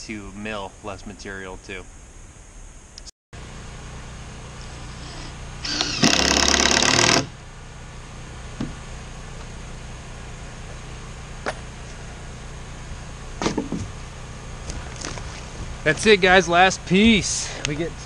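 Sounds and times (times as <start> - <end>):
generator humming: 2.9 - 18.0
power saw cutting wood: 4.6 - 7.4.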